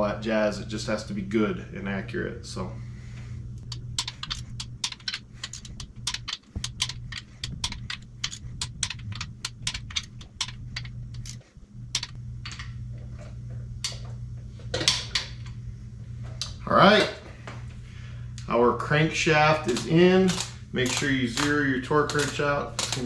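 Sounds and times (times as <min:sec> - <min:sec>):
torque wrench ratcheting clicks: 0:03.6 - 0:11.4, 0:12.0 - 0:12.2, 0:19.6 - 0:23.0.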